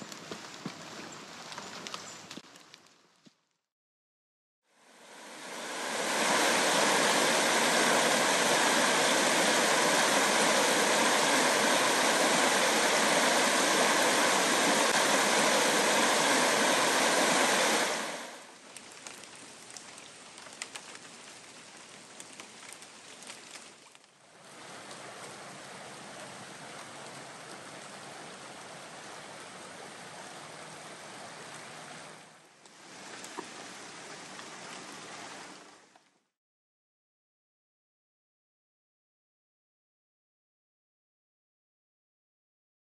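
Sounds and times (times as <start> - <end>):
river rapids rushing: 5.0 - 18.4.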